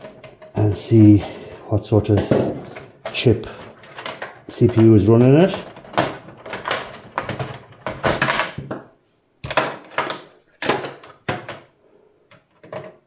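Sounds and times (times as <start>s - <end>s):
clicks and knocks in computer case: 2.1s - 8.8s, 9.4s - 11.7s, 12.3s - 13.0s.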